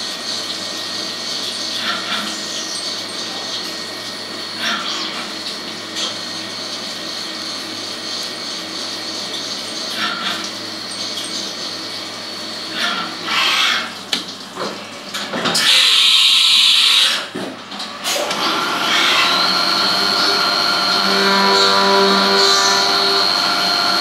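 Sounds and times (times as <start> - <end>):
milling spindle whine: 18.4 - 24.0.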